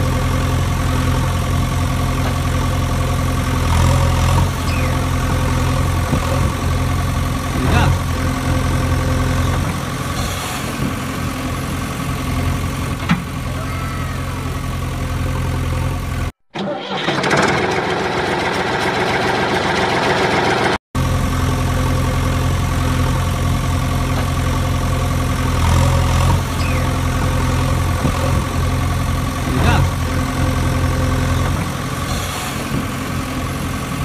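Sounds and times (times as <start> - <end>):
engine idling: 0.0 - 34.0.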